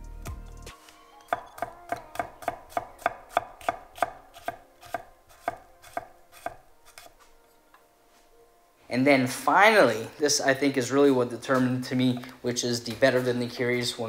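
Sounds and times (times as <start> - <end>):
knife chopping pepper on wooden board: 1.3 - 7.2.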